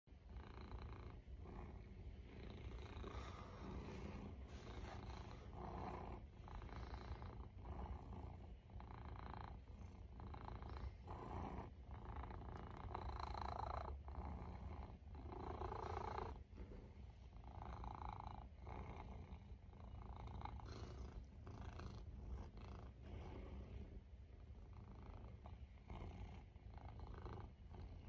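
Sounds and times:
cat purring: 0.1s - 28.0s.

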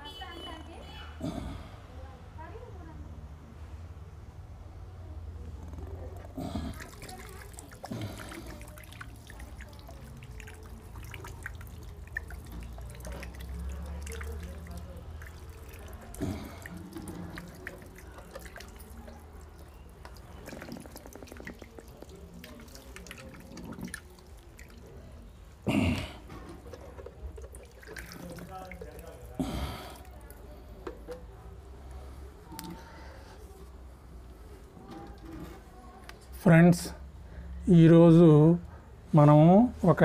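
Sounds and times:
water dripping onto soil: 6.2s - 30.4s.

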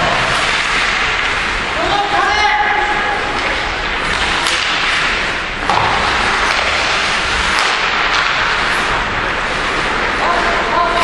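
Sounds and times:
sharp knocks of stick or puck: 4.4s - 8.6s.

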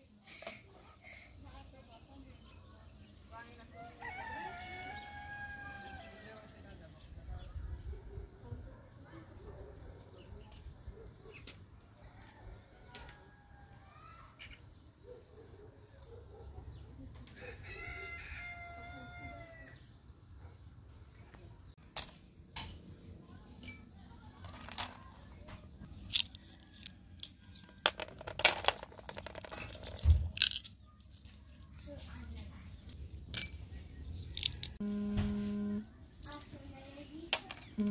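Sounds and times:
rooster crowing: 3.8s - 6.2s, 17.4s - 19.8s
nut shells cracking: 25.9s - 33.6s, 34.2s - 34.8s.

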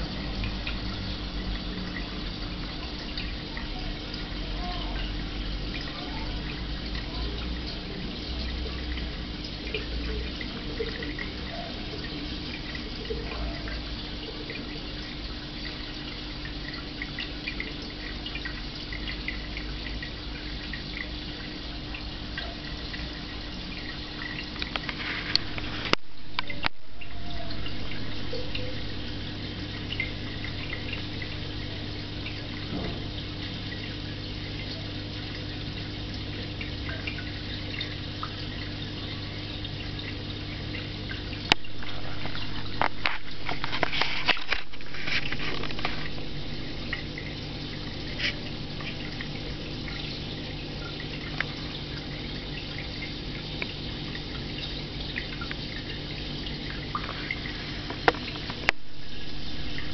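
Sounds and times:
water trickling: 0.0s - 59.9s.

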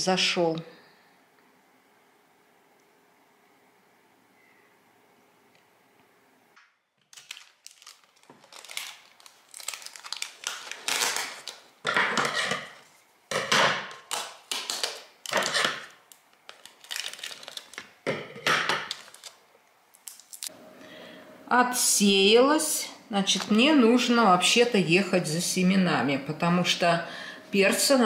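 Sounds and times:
packing tape ripping: 7.0s - 12.8s, 13.9s - 18.0s, 18.8s - 20.5s.

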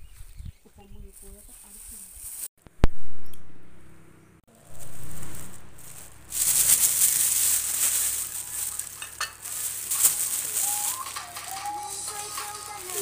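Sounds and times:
plastic bag rustling: 1.1s - 2.5s, 4.5s - 13.0s.

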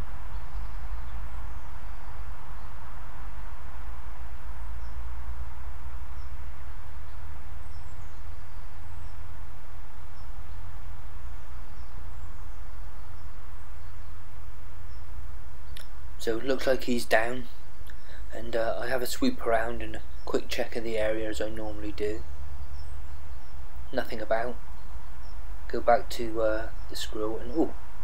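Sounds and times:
faint high bird chirps: 6.0s - 9.4s, 11.3s - 28.0s.

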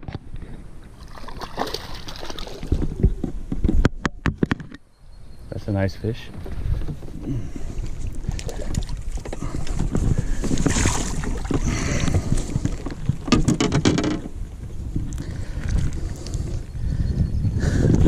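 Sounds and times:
wind rumble on microphone: 0.0s - 5.5s, 6.2s - 18.0s
fish splashing in water: 1.0s - 2.8s, 8.2s - 12.9s.

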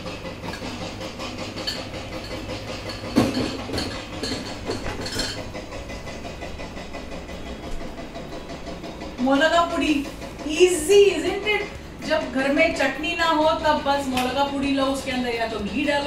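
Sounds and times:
construction machinery noise: 0.0s - 16.0s
glass jars knocking: 1.6s - 5.5s.

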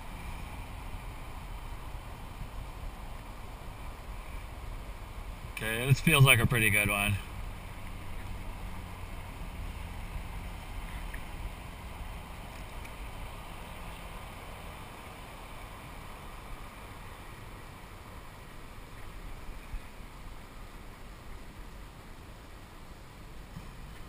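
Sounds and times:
wind noise: 0.0s - 8.9s
water wash: 0.0s - 24.0s.

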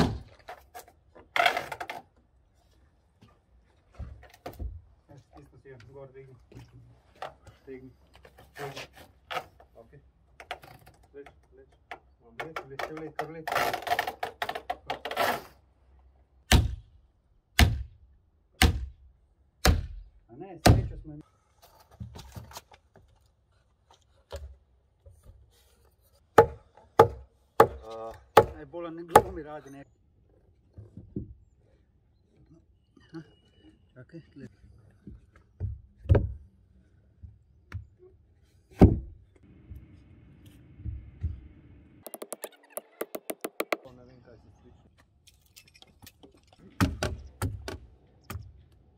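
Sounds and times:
hammer blows on wooden log: 42.1s - 43.8s.

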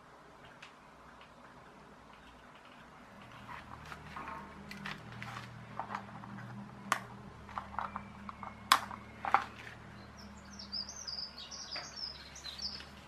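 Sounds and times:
small bird chirping rapidly: 7.9s - 13.0s.

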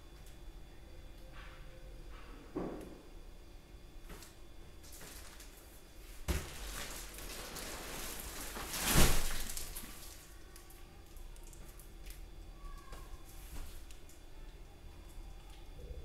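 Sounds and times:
plastic wrapping rustling: 4.8s - 10.7s.

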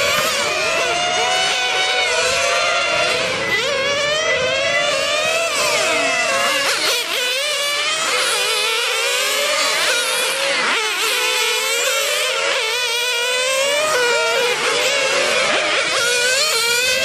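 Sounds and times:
small engines whining at high pitch: 0.0s - 17.0s.

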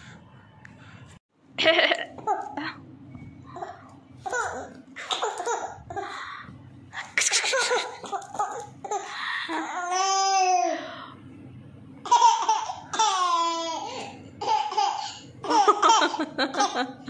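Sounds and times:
baby laughing: 12.0s - 17.0s.

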